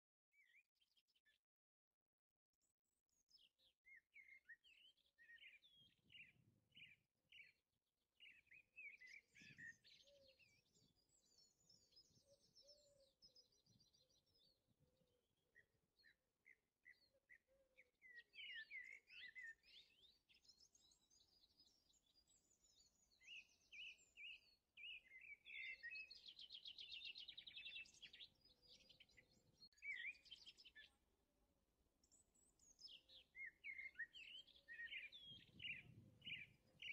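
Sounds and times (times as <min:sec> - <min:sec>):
birds chirping and trilling: 0:15.6 - 0:31.0, 0:32.1 - 0:36.9.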